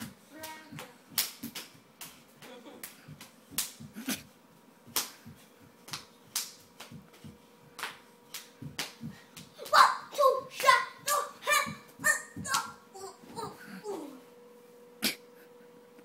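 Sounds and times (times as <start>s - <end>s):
hand claps and slaps: 0.0s - 4.0s, 4.9s - 9.8s, 10.6s - 10.8s, 11.9s - 12.8s.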